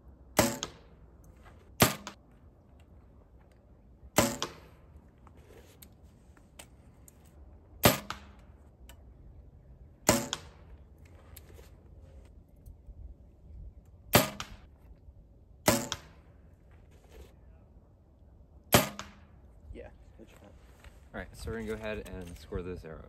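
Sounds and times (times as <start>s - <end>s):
arrow striking target: 0.4s - 1.0s, 1.7s - 2.2s, 4.2s - 4.9s, 7.8s - 8.5s, 10.0s - 10.8s, 14.1s - 14.7s, 15.6s - 16.3s, 18.7s - 19.4s.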